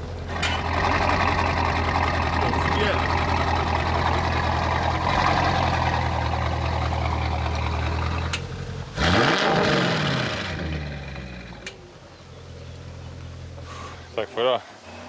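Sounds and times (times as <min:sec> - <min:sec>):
car engine revving hard: 0:00.0 - 0:11.7
car engine idling: 0:00.0 - 0:15.0.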